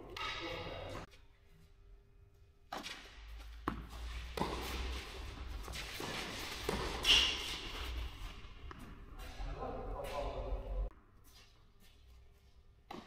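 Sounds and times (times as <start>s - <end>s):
ball bouncing: 2.7s - 9.3s
racket strokes: 2.7s - 9.4s
tennis ball hits: 3.6s - 5.0s, 5.8s - 7.6s.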